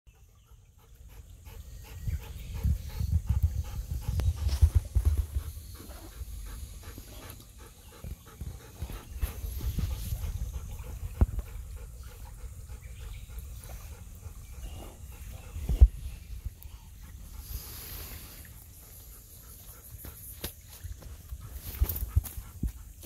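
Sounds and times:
dog panting: 0.2 - 20.4
low rumbling thumps: 2.1 - 17.3.

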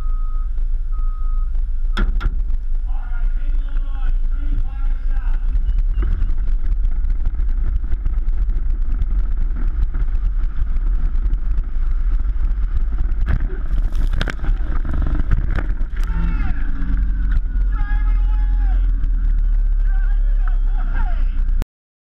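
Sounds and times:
car engine rumble: 0.0 - 21.6
wind buffeting: 2.3 - 21.6.

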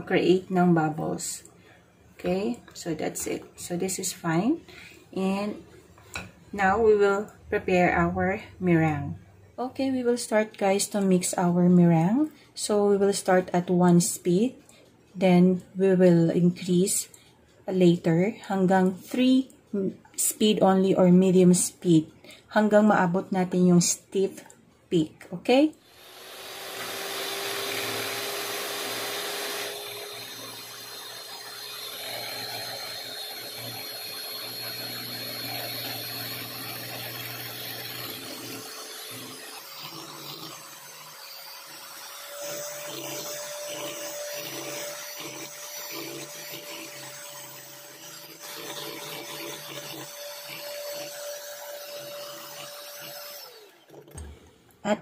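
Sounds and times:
electric hand mixer whirring: 25.8 - 54.3.

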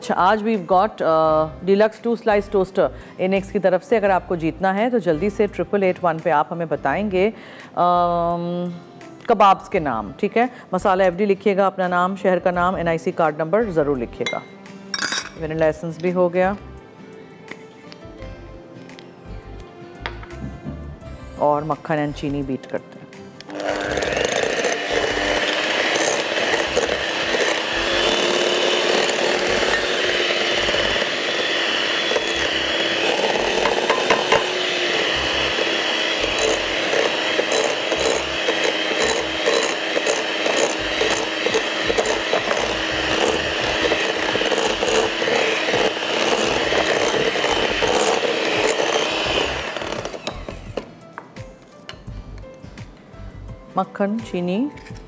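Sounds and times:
electric mixer running: 23.5 - 50.9.

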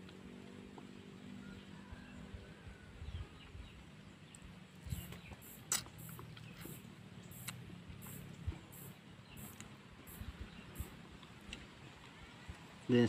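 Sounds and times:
faint bird chirps: 1.4 - 11.0
citrus fruit being peeled: 4.9 - 8.3.

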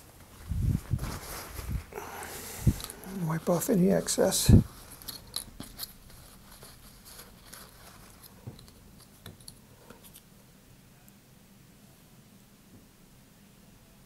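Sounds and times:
faint clicks and rustles of hands: 0.0 - 10.4.

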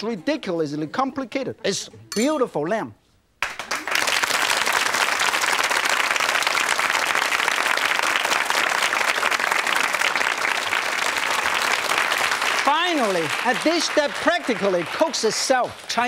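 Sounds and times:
audience applauding: 3.4 - 16.0.

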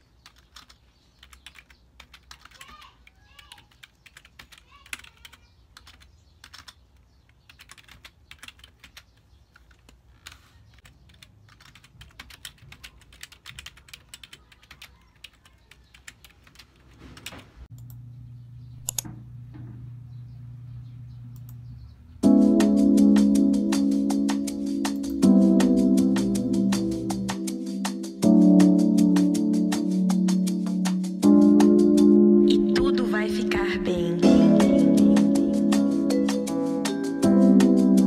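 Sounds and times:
typing on a keyboard: 0.0 - 17.9
steady low hum: 17.7 - 22.6.

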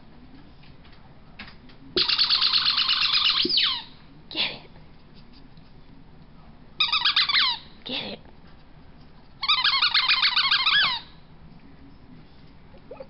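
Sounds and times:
squeaky rubber ball squeaks: 2.0 - 3.9, 6.8 - 7.6, 9.4 - 11.1.

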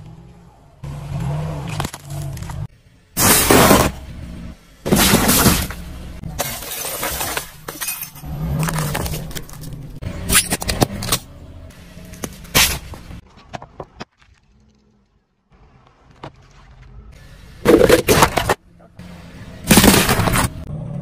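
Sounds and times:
tyre crushing objects: 3.2 - 4.0, 4.9 - 5.8, 19.7 - 20.6
glass breaking: 6.4 - 8.2.

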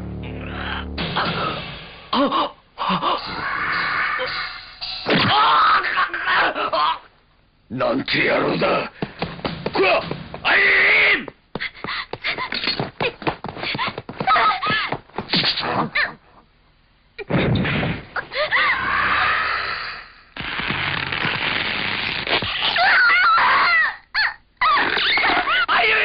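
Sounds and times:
heavy impact: 0.0 - 2.3, 9.0 - 10.7.

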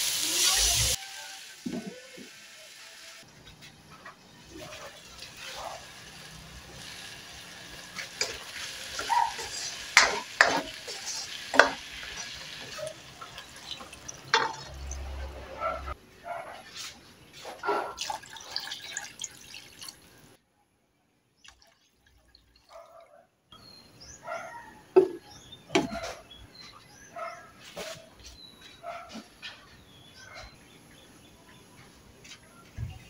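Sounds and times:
spatula stirring in wok: 5.2 - 13.5
liquid sloshing and dripping: 18.0 - 20.4, 21.4 - 23.0.

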